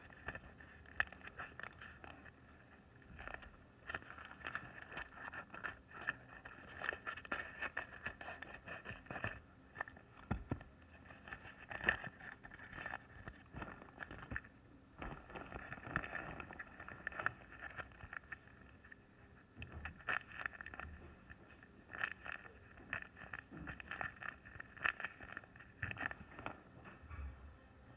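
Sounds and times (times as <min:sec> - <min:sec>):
paper and plastic crinkling: 0:00.0 - 0:19.0, 0:19.6 - 0:26.7.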